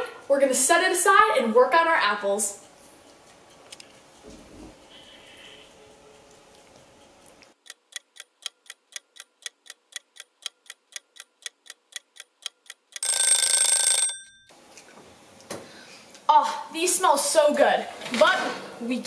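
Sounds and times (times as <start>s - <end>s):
kitchen timer ticking: 7.6s - 14.5s
timer bell ringing: 13.0s - 14.5s.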